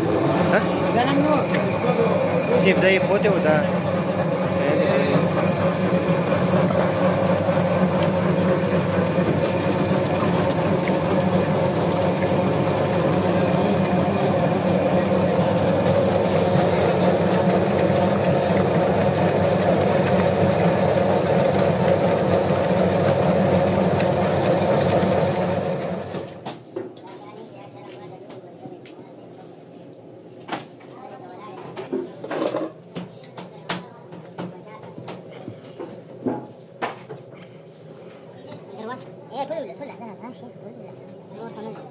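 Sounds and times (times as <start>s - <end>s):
electric mixer whirring: 0.0s - 26.4s.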